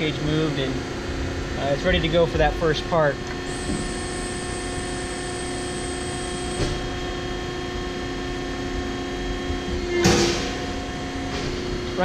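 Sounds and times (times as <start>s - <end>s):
hydraulic press humming: 3.3s - 7.6s.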